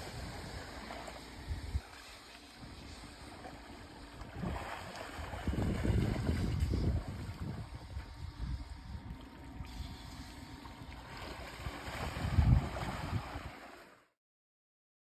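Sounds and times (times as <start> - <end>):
elephant splashing in water: 1.9 - 7.7, 11.0 - 13.9
wind rumbling on microphone: 4.2 - 9.2, 11.4 - 13.6.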